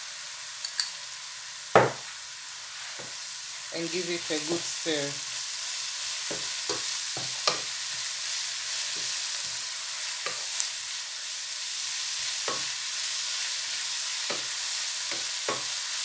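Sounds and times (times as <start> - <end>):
vegetables sizzling in oil: 0.0 - 16.0
spatula knocking and scraping pan: 1.8 - 2.1, 6.2 - 7.7, 12.4 - 12.8, 14.2 - 15.8.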